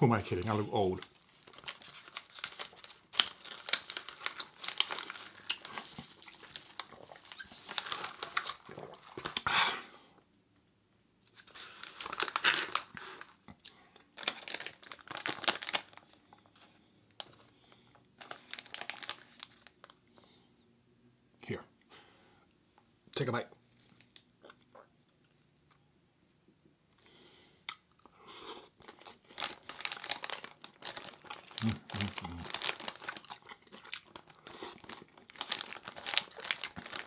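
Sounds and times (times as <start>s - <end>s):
food wrapping crinkling: 0.4s - 9.5s, 11.3s - 13.4s, 14.1s - 20.0s, 28.8s - 37.0s.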